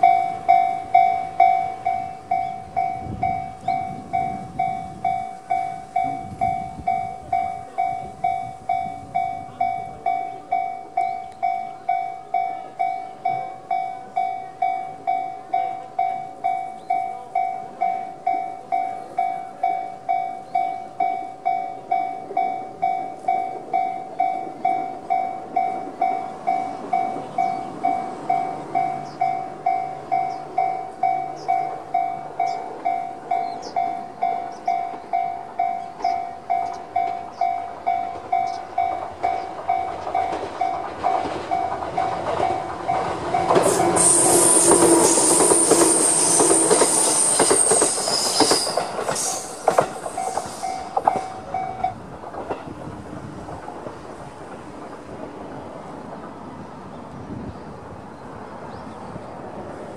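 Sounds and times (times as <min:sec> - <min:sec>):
railway crossing electronic bell: 0:00.0 - 0:59.9
train wheels clattering over rail joints: 0:21.9 - 0:56.7
train wheels squealing: 0:43.6 - 0:51.9.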